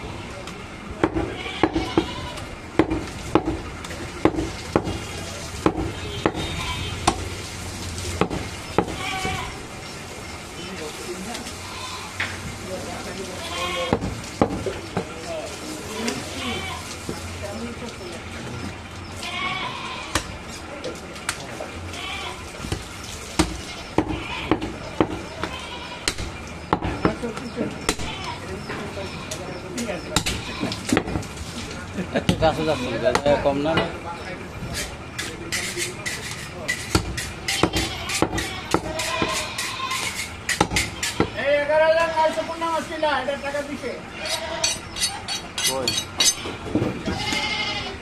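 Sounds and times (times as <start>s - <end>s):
goats bleating: 1.2s - 2.5s, 5.9s - 7.1s, 8.8s - 9.6s, 11.5s - 12.3s, 13.3s - 14.0s, 15.8s - 17.0s, 19.1s - 20.2s, 21.9s - 22.5s, 23.6s - 26.1s, 27.9s - 29.6s, 30.3s - 30.9s, 32.4s - 33.2s, 37.4s - 42.5s, 44.0s - 45.3s, 46.2s - 48.0s
knife chopping meat on wooden block: 40.5s - 41.3s.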